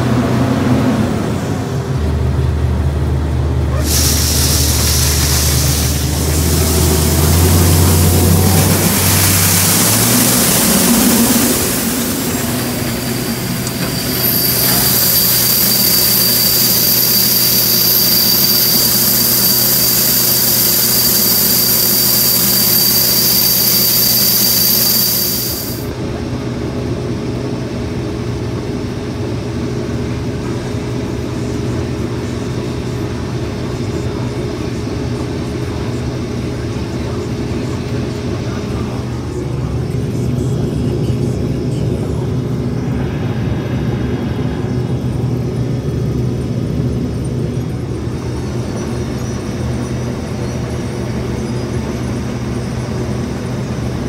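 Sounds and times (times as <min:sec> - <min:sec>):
combine harvester engine drone: 0:00.0 - 0:54.0
loud high hiss and whine: 0:03.7 - 0:26.0, 0:41.2 - 0:47.0.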